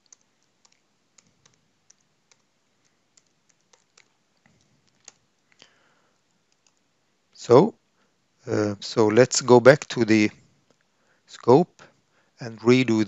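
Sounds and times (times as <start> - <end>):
keyboard typing clicks: 0.0 - 5.2, 6.5 - 6.8.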